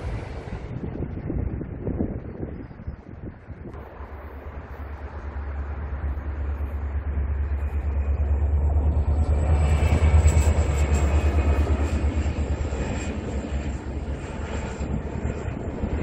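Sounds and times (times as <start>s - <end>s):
diesel locomotive engine rumbling: 0.0s - 16.0s.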